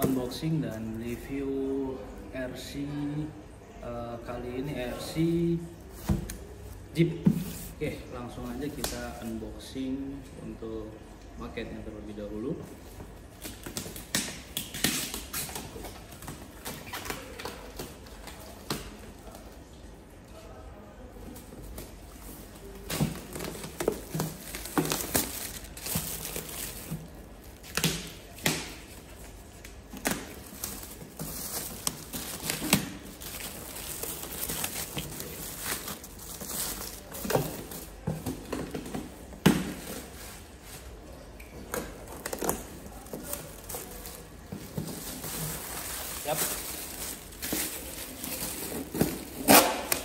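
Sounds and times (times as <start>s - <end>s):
plastic bag crinkling and tearing: 22.6s - 38.0s, 42.0s - 50.0s.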